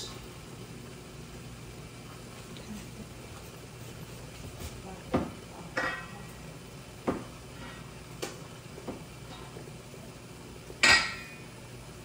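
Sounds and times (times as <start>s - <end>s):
kitchenware clattering: 5.2s - 6.3s, 10.8s - 11.4s.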